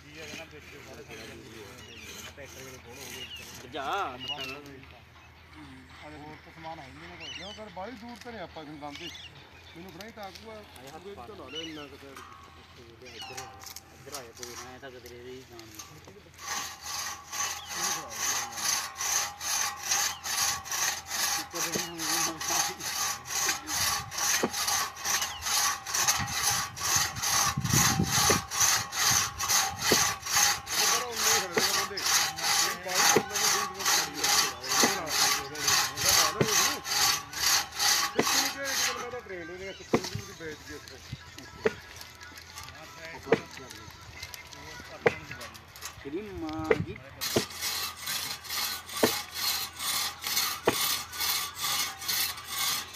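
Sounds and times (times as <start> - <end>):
crosscut saw rasping through wood: 0.0 - 4.7, 13.1 - 41.0, 41.6 - 43.8, 44.9 - 52.9.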